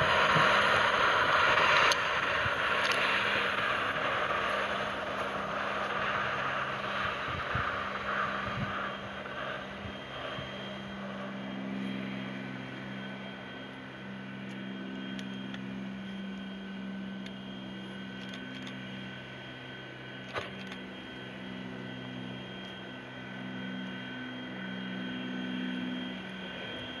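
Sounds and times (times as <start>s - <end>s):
soft locomotive chuffs: 0.0s - 27.0s
steady low hum: 0.0s - 27.0s.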